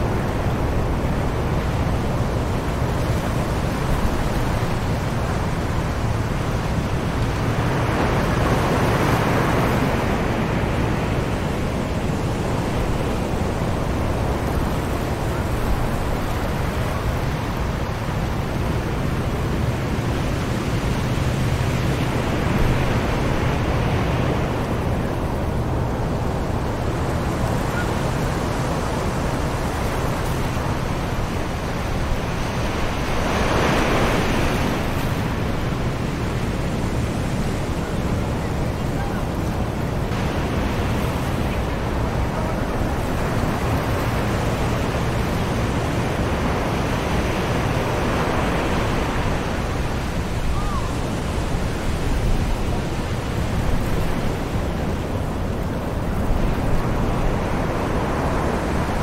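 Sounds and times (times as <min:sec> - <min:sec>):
distant ocean surf: 0:00.0 - 0:59.0.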